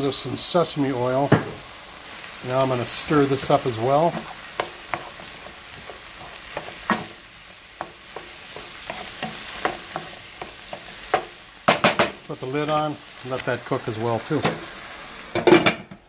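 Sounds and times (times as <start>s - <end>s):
meat sizzling in a skillet: 0.0s - 15.9s
wooden spoon scraping a pan: 2.5s - 11.4s.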